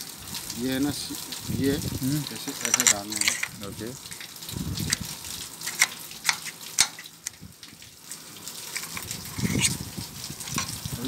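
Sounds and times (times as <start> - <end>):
sharp metallic clicks: 5.6 - 7.4.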